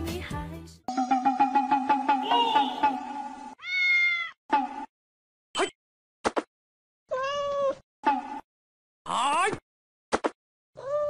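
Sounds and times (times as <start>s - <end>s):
cat meowing: 3.6s - 4.4s, 7.1s - 7.8s.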